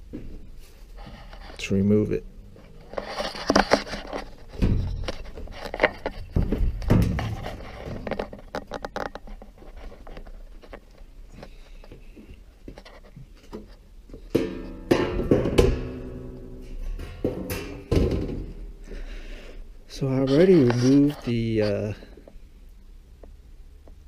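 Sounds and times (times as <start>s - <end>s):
quiet handling noise: 19.9s - 22.4s.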